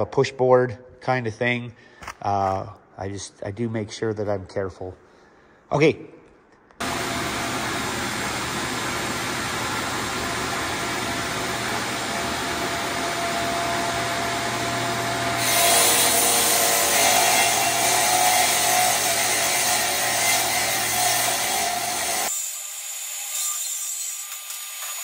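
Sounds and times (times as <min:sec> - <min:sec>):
table saw cutting plywood: 0:06.8 - 0:25.0.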